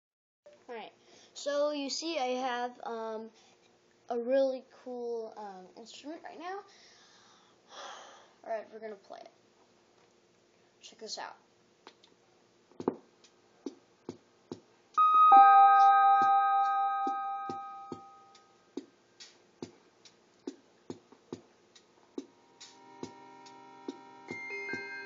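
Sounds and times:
rhythm machine clicking beat: 12.8 - 24.9
electronic chords ringing: 15.0 - 18.6.

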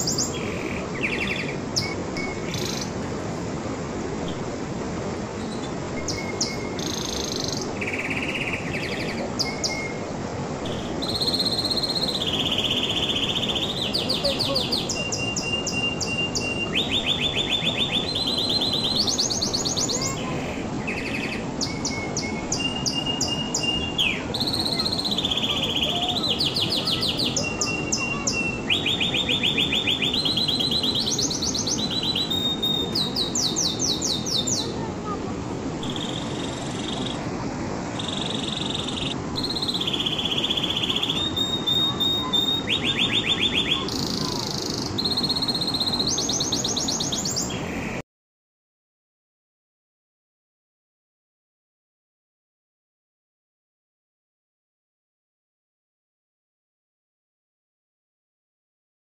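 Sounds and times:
low background noise: 0.0 - 48.0
canary singing trills: 5.4 - 10.0, 10.6 - 34.8, 35.8 - 37.2, 38.0 - 48.0.

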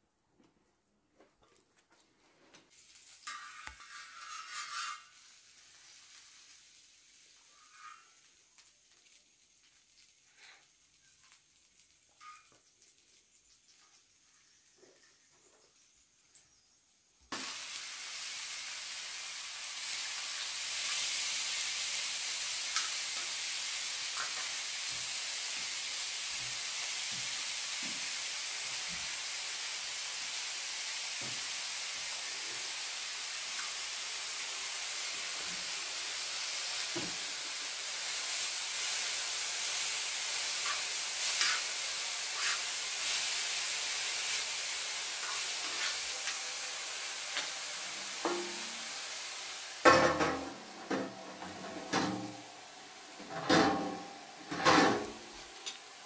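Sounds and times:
herbs sizzling in a pan: 2.7 - 56.0
spoon scraping pan: 3.3 - 5.2, 40.4 - 43.3, 45.2 - 46.4.

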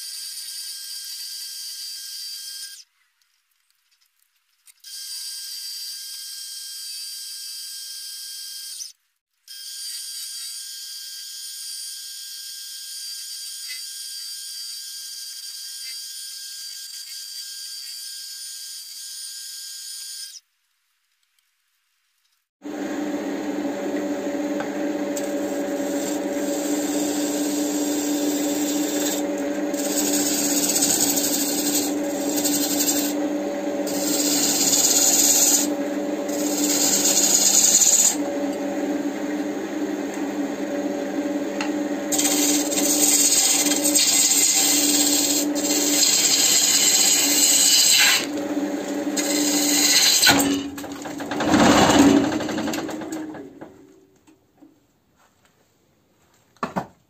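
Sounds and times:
tool shaving spinning wood: 22.6 - 53.6
lathe motor hum: 22.6 - 53.7.

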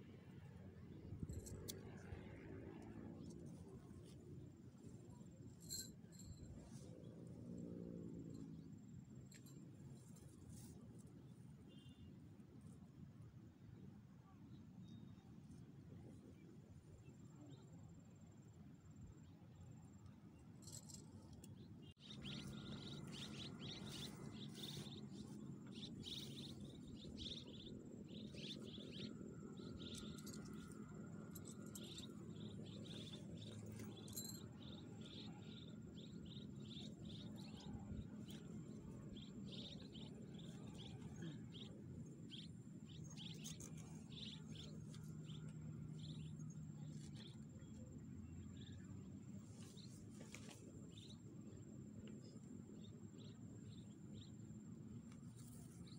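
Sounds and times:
small chirps: 20.6 - 47.8.

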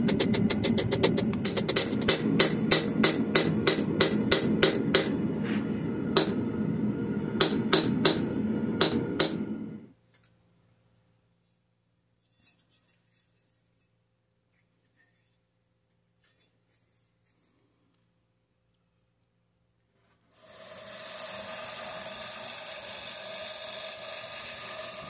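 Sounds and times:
steady background noise: 0.0 - 12.9
hammer striking steel on anvil: 0.1 - 5.2, 6.2 - 6.5, 7.4 - 9.6.

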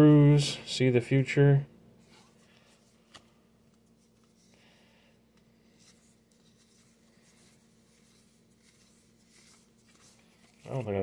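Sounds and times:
low steady hum: 0.0 - 11.0
trading cards rustling: 5.4 - 11.0.

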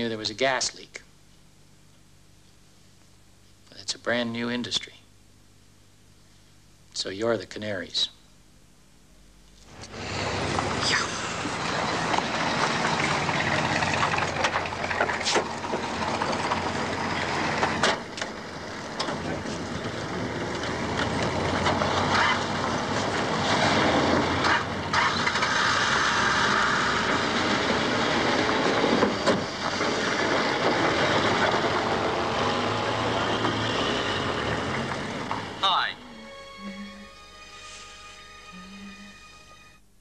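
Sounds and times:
vehicle and outdoor noise: 9.6 - 36.6.

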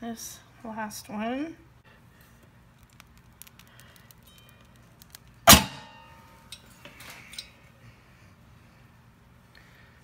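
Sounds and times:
metallic twang: 5.5 - 6.2.

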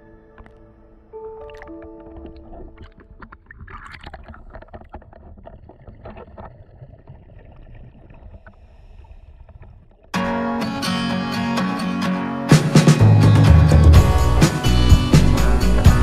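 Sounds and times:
crackles and clicks: 0.3 - 10.2
water sloshing and bubbling: 0.4 - 10.2.

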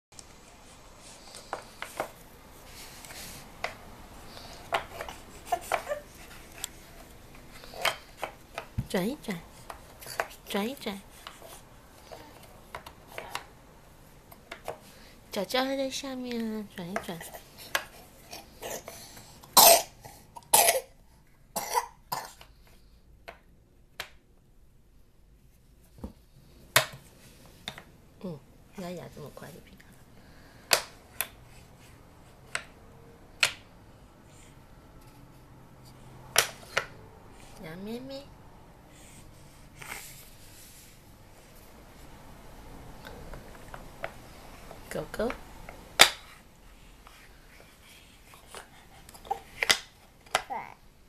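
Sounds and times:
person coughing: 19.6 - 20.9, 21.6 - 22.4.

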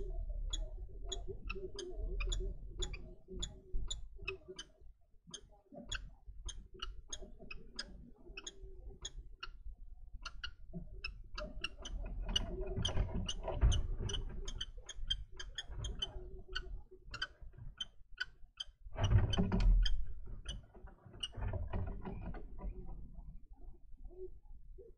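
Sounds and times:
kestrel ticking calls: 0.0 - 9.6, 10.2 - 13.5, 14.1 - 18.8.

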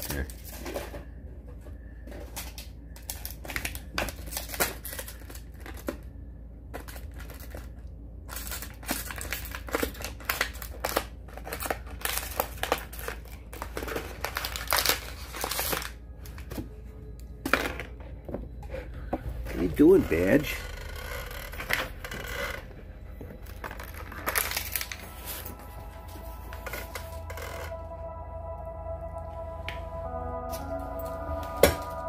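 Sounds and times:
puppy chewing plastic bottle: 8.4 - 16.0, 23.4 - 25.2.

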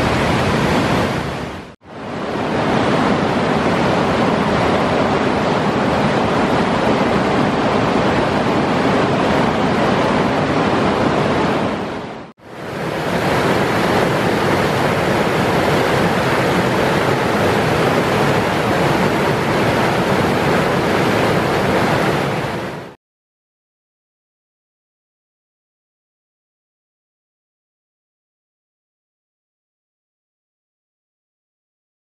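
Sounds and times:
water rushing over rocks: 0.0 - 23.0.

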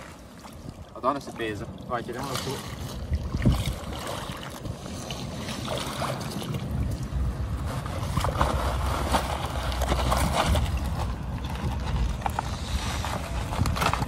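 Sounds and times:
water splashing and sloshing: 0.0 - 14.0
wind rumble on microphone: 0.0 - 14.0.

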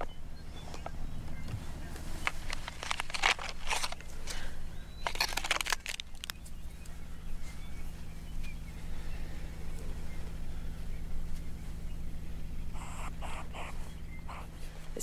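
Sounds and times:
steady low hum: 0.0 - 15.0
plastic pipette rustling on cloth: 2.2 - 4.4, 5.0 - 6.4.

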